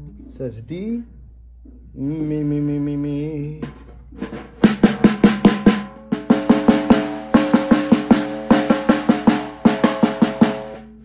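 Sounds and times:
snare drum hits: 3.6 - 10.9.

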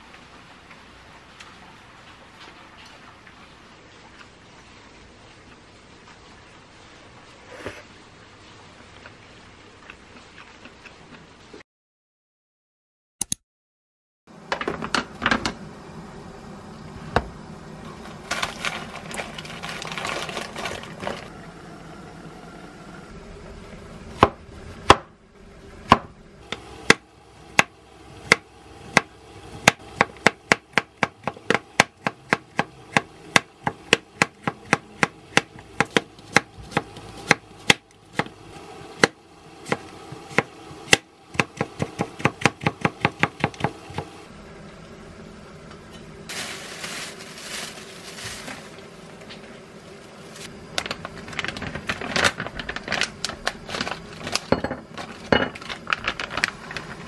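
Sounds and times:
plastic packaging rustling: 18.0 - 21.3, 46.3 - 48.8, 50.3 - 57.0
knife chopping on wooden board: 28.3 - 38.3, 39.0 - 44.1.

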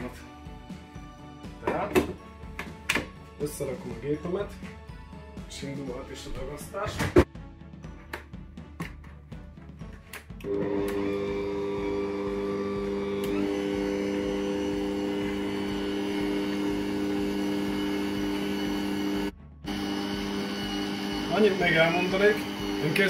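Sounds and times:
mixer motor humming: 10.4 - 23.0.

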